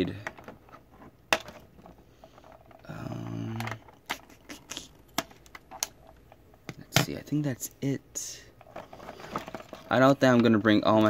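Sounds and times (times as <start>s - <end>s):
person humming: 2.8s - 5.0s.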